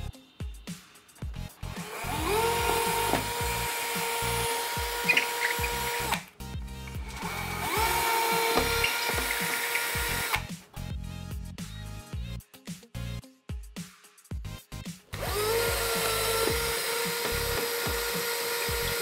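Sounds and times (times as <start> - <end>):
background music with a beat: 0.0 - 19.0
cordless drill drilling into plaster: 1.7 - 6.3, 7.0 - 10.5, 15.2 - 19.0.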